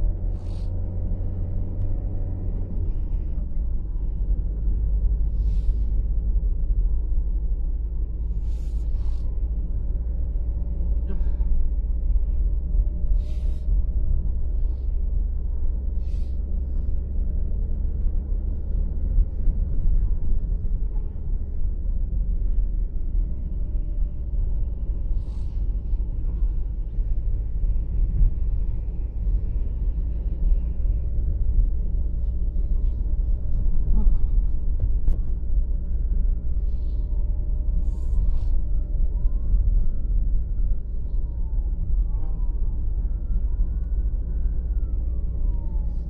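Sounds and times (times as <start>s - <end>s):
road noise: 0.0s - 46.0s
vehicle engine rumble: 0.0s - 46.0s.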